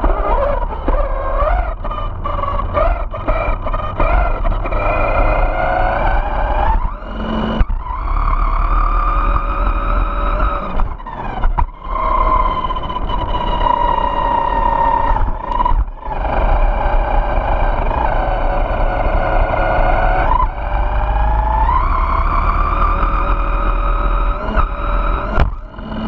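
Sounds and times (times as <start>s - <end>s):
electric motor whine: 0.0s - 26.0s
tyres rumbling on asphalt: 0.0s - 26.0s.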